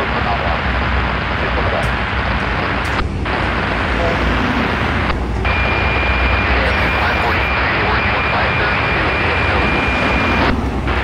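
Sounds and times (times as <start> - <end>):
scanner radio hiss: 0.0 - 11.0
train cars rolling past: 3.3 - 6.2, 9.4 - 11.0.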